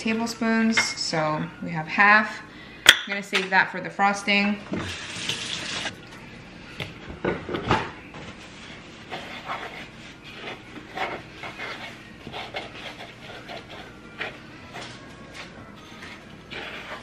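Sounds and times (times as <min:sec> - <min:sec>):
wooden spoon scraping plastic bowl: 0:09.0 - 0:14.9, 0:15.8 - 0:17.0.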